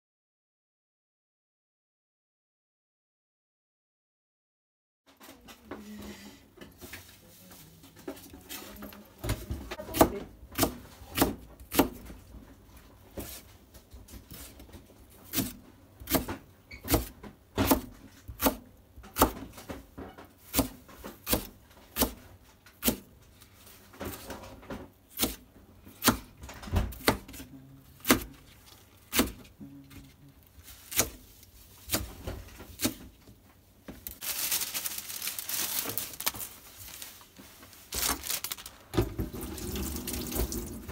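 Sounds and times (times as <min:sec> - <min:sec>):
knife chopping on plastic board: 0:09.3 - 0:12.1, 0:15.2 - 0:19.8, 0:20.4 - 0:23.1, 0:25.1 - 0:28.5, 0:29.1 - 0:29.5, 0:30.9 - 0:31.3, 0:31.9 - 0:33.1.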